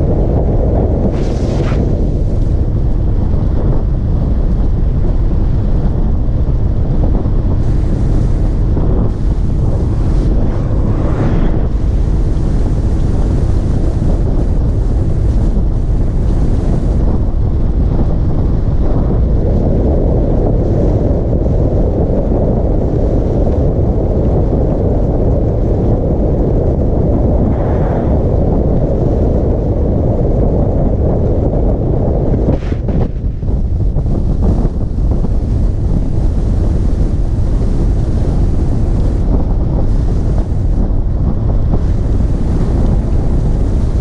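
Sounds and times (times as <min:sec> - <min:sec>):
road noise rumble: 0:00.0 - 0:44.0
wind buffeting microphone: 0:00.0 - 0:44.0.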